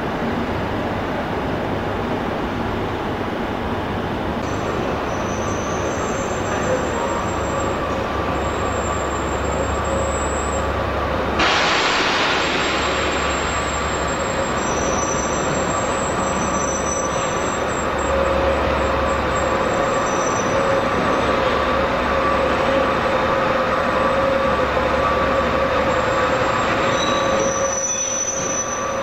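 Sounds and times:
train wheels rumbling on rails: 0:00.0 - 0:29.0
high-pitched wheel squeals: 0:04.5 - 0:10.7, 0:13.2 - 0:22.9, 0:25.6 - 0:29.0.

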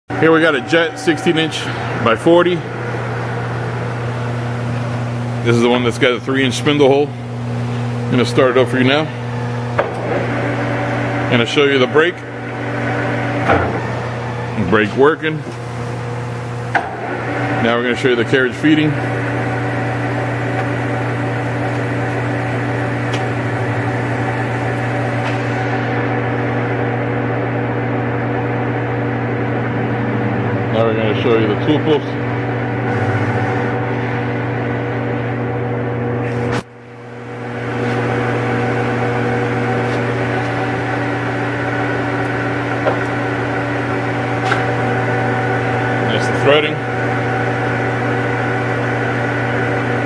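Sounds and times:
lathe running with steady hum: 0:00.1 - 0:50.0.

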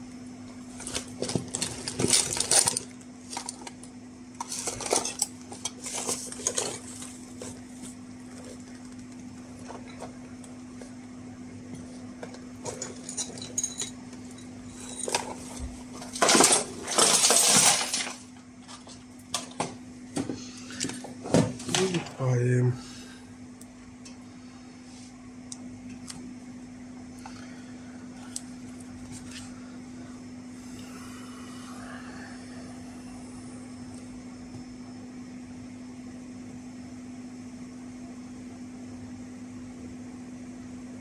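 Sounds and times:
steady low hum: 0:00.0 - 0:41.0
clatter of handling: 0:00.8 - 0:10.2, 0:11.7 - 0:19.8
metal tools clinking: 0:12.6 - 0:18.2.

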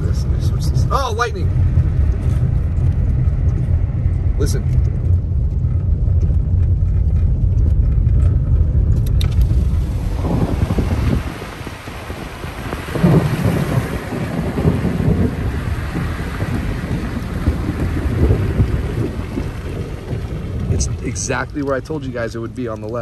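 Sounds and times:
heavy rain hissing: 0:00.0 - 0:03.2, 0:09.2 - 0:23.0
thunder rumbling: 0:00.0 - 0:23.0.

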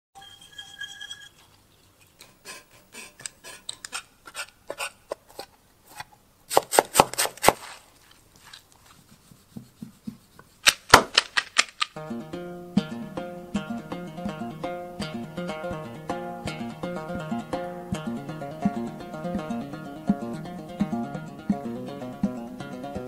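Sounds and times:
meat filling worked by hand: 0:06.5 - 0:08.7
plucked string tune: 0:12.0 - 0:23.0.

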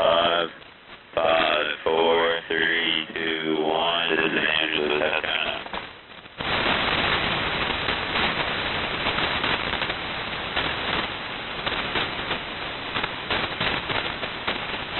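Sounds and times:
digital data signal hiss: 0:00.0 - 0:00.6.

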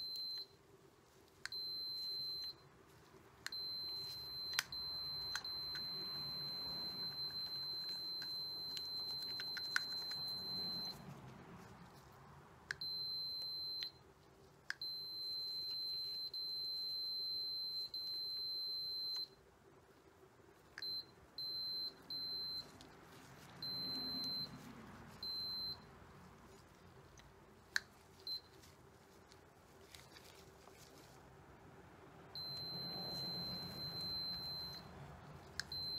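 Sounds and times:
multimeter continuity beeps: 0:00.0 - 0:00.6, 0:01.5 - 0:02.6, 0:03.4 - 0:11.0, 0:12.7 - 0:14.0, 0:14.7 - 0:19.4, 0:20.8 - 0:22.8, 0:23.6 - 0:24.6, 0:25.2 - 0:25.9, 0:28.2 - 0:28.6, 0:32.3 - 0:34.9, 0:35.6 - 0:35.9.

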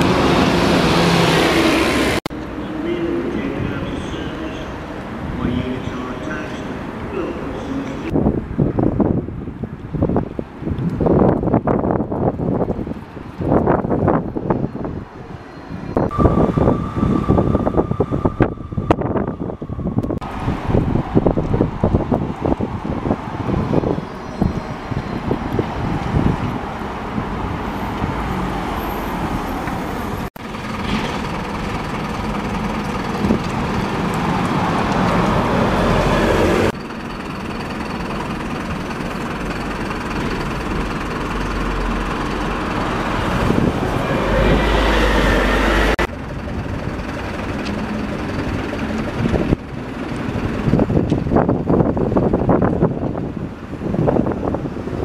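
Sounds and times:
buses passing: 0:00.0 - 0:55.0
rising whine: 0:15.8 - 0:21.7, 0:38.8 - 0:46.6.

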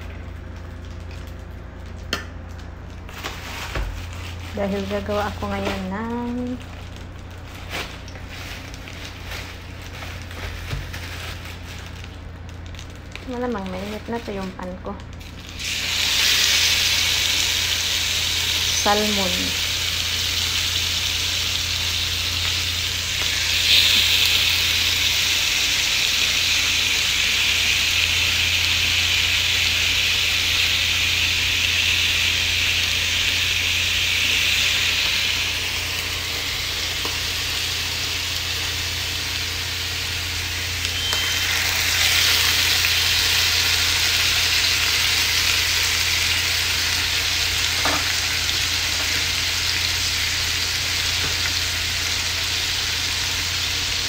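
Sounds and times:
fish sizzling in a grill pan: 0:15.2 - 0:54.0.

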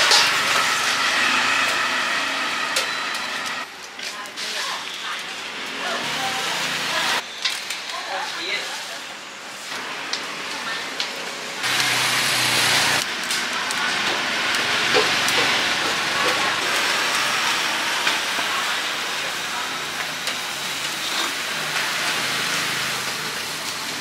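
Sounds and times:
food sizzling: 0:00.0 - 0:24.0.

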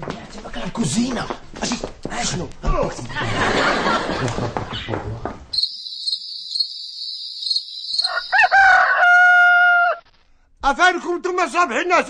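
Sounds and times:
crickets chirping: 0:05.5 - 0:08.8
rooster crowing: 0:07.5 - 0:10.0.

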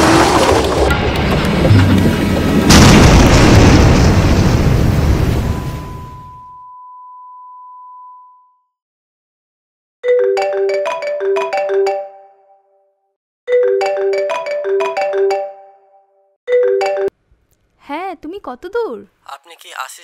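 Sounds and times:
marimba phone ringtone: 0:10.0 - 0:12.9, 0:13.5 - 0:17.2.

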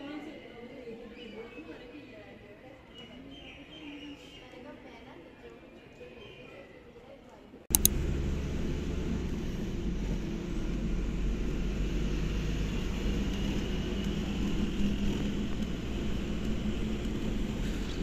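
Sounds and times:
bus engine running: 0:07.7 - 0:18.0
road noise: 0:07.7 - 0:18.0.

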